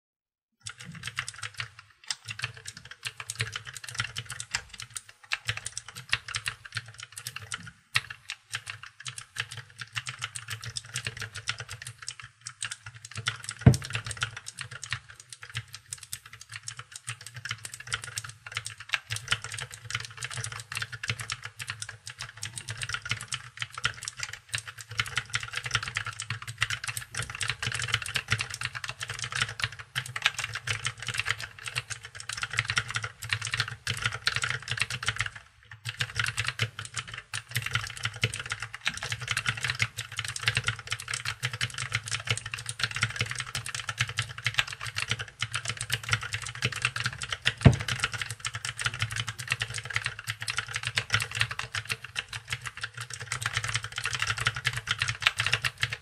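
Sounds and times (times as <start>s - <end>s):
fast mechanical keyboard typing: 0.6s - 56.0s
keyboard thump: 13.7s - 14.1s, 47.6s - 47.9s.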